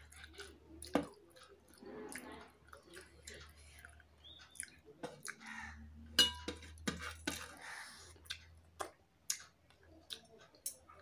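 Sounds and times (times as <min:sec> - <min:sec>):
clink on metal plate: 0:06.2 - 0:06.6.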